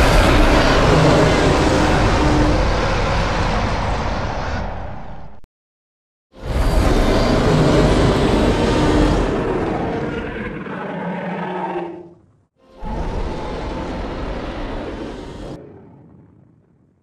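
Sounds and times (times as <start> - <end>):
dinosaur roar: 6.4 - 15.6.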